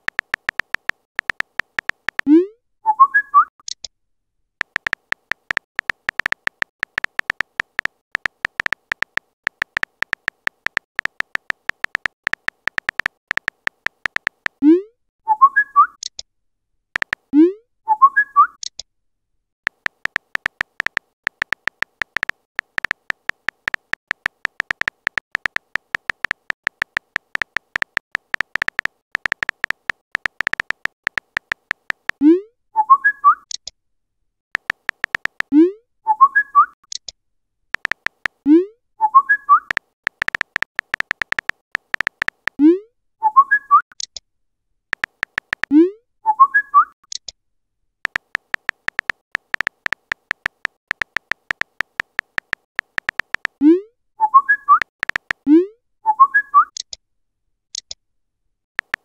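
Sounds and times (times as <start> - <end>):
keyboard tap clicks: 0.0 - 2.3, 4.6 - 14.6, 17.0 - 17.3, 19.7 - 32.2, 34.6 - 35.5, 37.8 - 38.4, 39.7 - 42.6, 45.0 - 45.7, 48.1 - 53.6, 54.8 - 55.4, 58.8 - 59.0
bird-like chirp sound effect: 2.4 - 3.5, 15.3 - 16.0, 17.9 - 18.6, 32.8 - 33.5, 36.1 - 36.8, 39.0 - 39.7, 43.2 - 43.8, 46.3 - 46.9, 54.2 - 54.8, 56.1 - 56.7.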